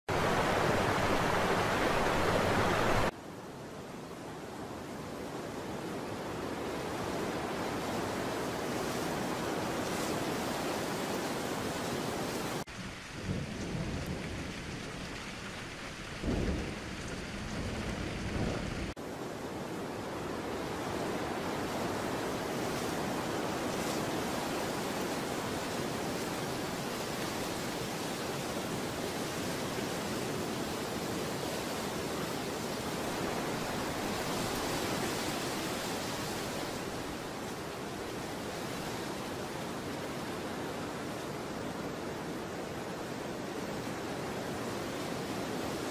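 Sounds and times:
falling water rushing: 0:00.0 - 0:03.2, 0:06.0 - 0:19.0, 0:19.8 - 0:45.9
rain: 0:00.0 - 0:45.9
low rumbles of thunder: 0:12.7 - 0:18.9.

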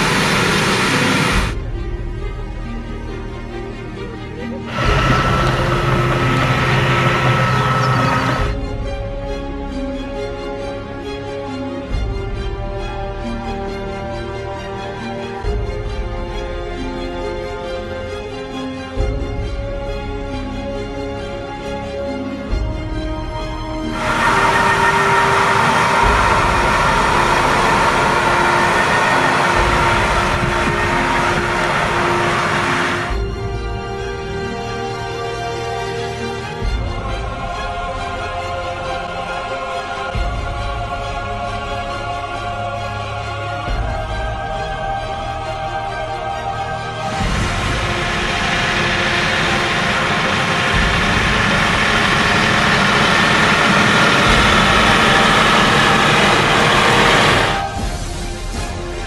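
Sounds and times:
machine whine: 0:00.0 - 0:01.6, 0:04.6 - 0:08.8, 0:23.8 - 0:34.9, 0:46.9 - 0:58.9
tractor running under load: 0:00.0 - 0:01.6, 0:04.7 - 0:08.7, 0:23.9 - 0:34.3, 0:47.0 - 0:58.0.

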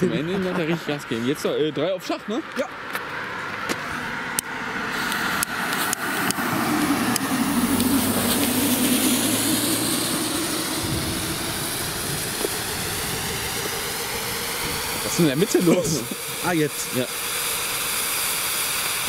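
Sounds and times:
cone fountains hissing: 0:04.8 - 0:19.0.

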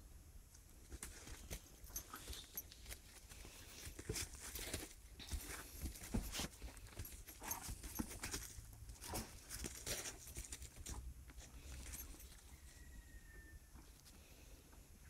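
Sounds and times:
straw rustling and crackling: 0:00.8 - 0:12.5.

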